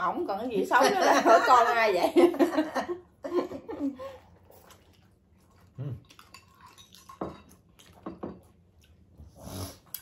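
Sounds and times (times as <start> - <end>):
dishes and cutlery clinking: 6.1 - 8.6.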